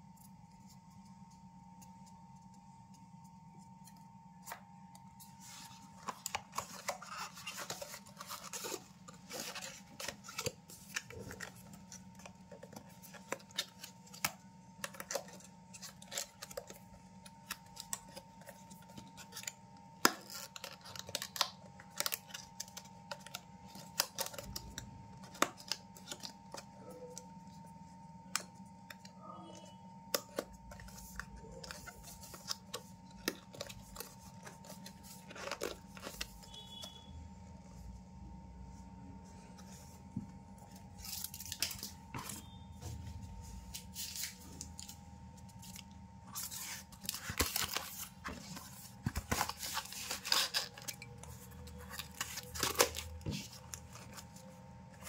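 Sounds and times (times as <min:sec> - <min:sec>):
faint hum: 0:00.0 - 0:55.0.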